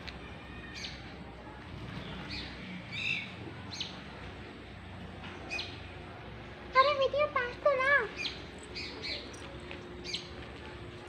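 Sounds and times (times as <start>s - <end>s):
low steady background hum: 0.0s - 11.0s
small birds chirping: 1.8s - 4.2s, 5.4s - 6.0s, 8.0s - 10.4s.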